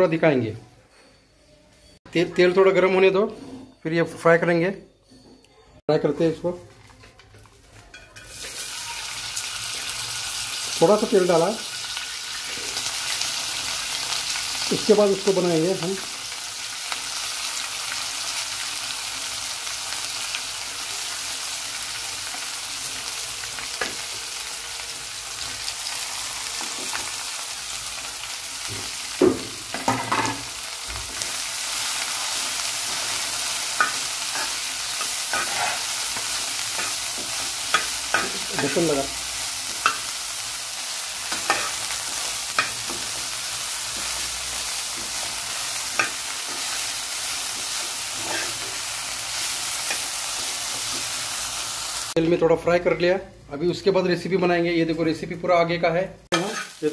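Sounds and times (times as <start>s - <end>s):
okra sizzling in pan: 6.2s - 53.2s, 56.3s - 56.9s
spoon scraping pan: 33.7s - 38.9s, 44.9s - 51.2s, 56.3s - 56.8s.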